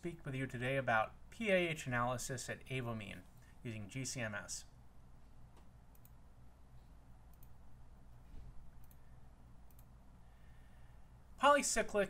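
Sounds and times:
low steady hum: 0.0 - 12.0
faint clicks: 9.6 - 9.9.

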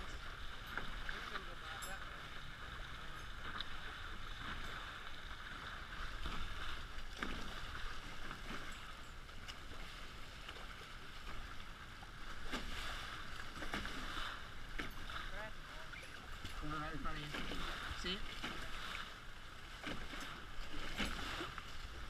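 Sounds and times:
water rushing past hulls: 0.0 - 22.0.

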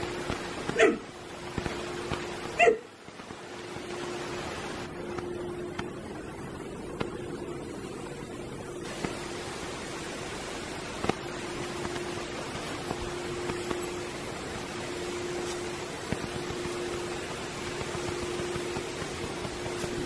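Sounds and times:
rain hissing: 0.0 - 20.0
dog barking: 0.7 - 1.1, 2.6 - 2.9.

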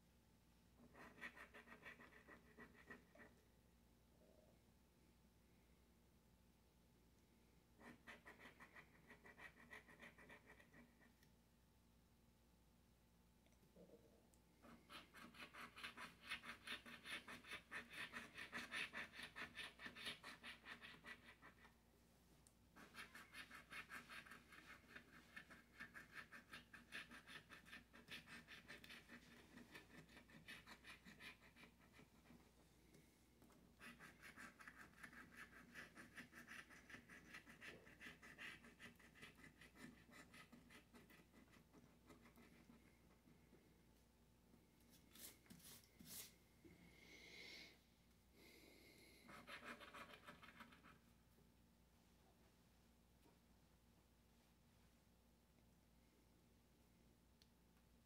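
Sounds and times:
scratching lottery ticket: 0.8 - 3.3, 14.6 - 21.8, 22.8 - 32.4, 33.8 - 43.0, 49.3 - 51.0.

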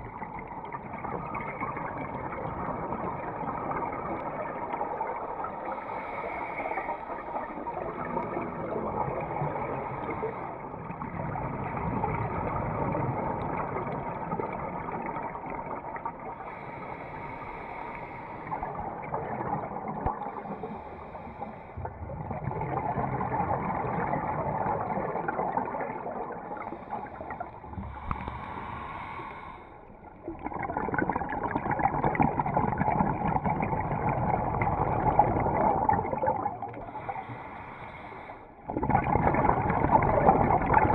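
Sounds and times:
scuba regulator breathing: 5.6 - 7.4, 16.4 - 18.8, 20.2 - 22.0, 26.5 - 30.0, 36.7 - 38.6
bubbling exhalations: 17.6 - 37.4, 38.6 - 40.9.

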